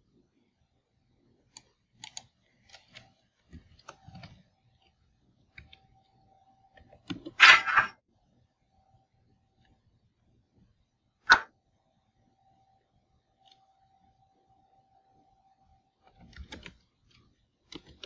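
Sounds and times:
keyboard typing: 1.5s - 6.0s, 6.7s - 7.6s, 16.0s - 18.0s.

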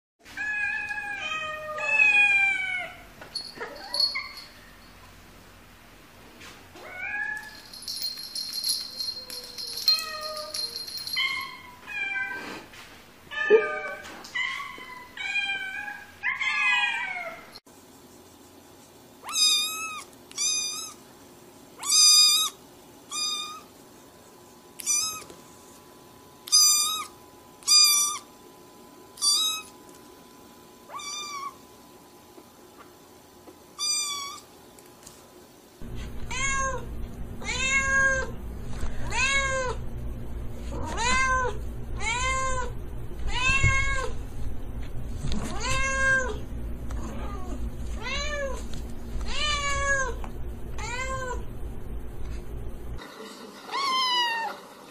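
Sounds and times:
steady low hum: 7.4s - 11.8s, 35.7s - 53.0s.

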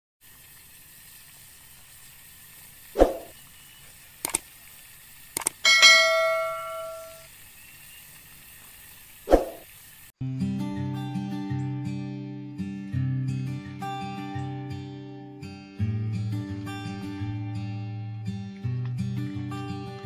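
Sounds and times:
faint steady hiss: 0.2s - 10.1s
notification bell ding: 5.7s - 7.2s.

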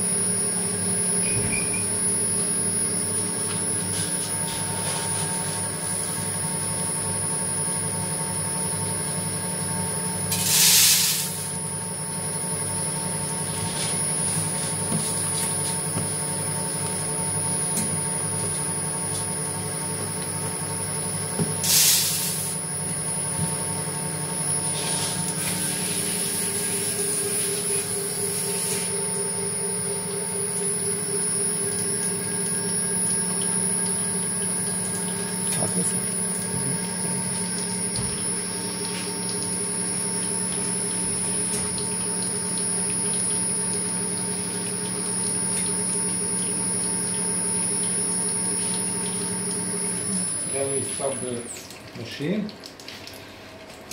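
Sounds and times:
oil press motor humming and whining: 0.0s - 53.9s
short loud hisses: 10.4s - 11.4s, 21.6s - 22.5s.

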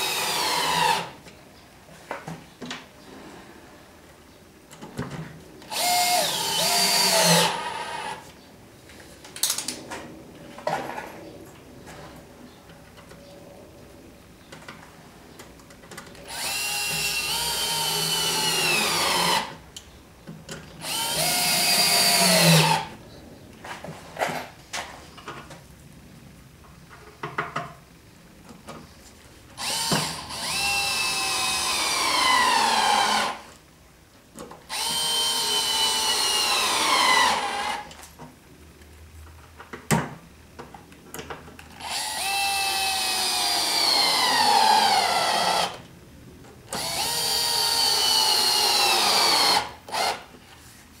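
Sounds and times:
cordless drill into wood: 0.0s - 1.2s, 5.7s - 8.2s, 16.3s - 19.5s, 20.8s - 22.9s, 29.6s - 33.5s, 34.7s - 37.9s, 41.8s - 45.8s, 46.8s - 50.3s.

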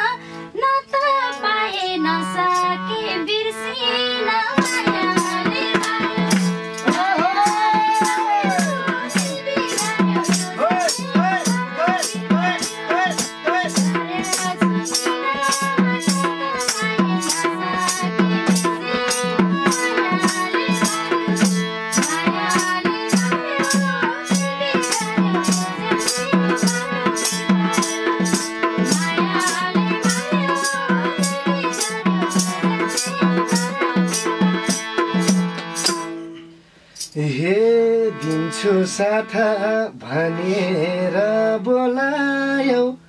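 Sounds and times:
harmonium melody: 0.0s - 42.9s
hand drum beating: 4.6s - 36.1s
tambourine jingling: 5.2s - 36.3s, 36.9s - 37.2s.

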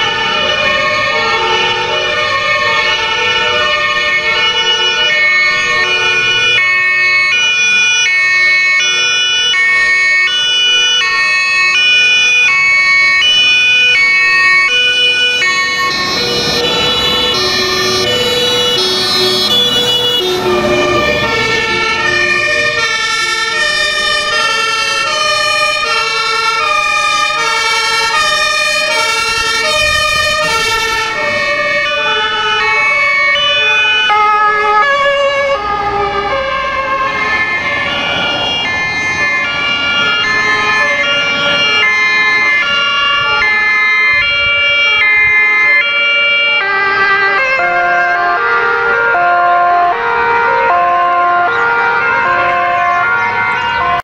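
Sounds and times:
fire truck engine passing: 0.0s - 54.0s
two-tone emergency sirens: 0.0s - 54.0s.

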